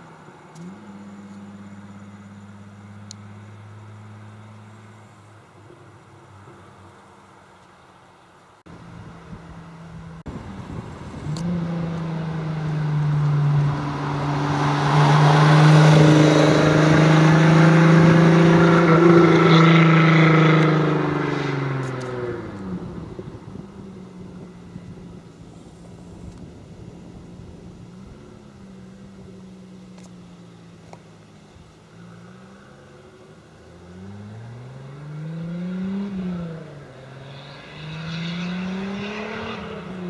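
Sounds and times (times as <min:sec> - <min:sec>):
sports car passing at speed: 0:08.7 - 0:30.8, 0:31.4 - 0:40.0.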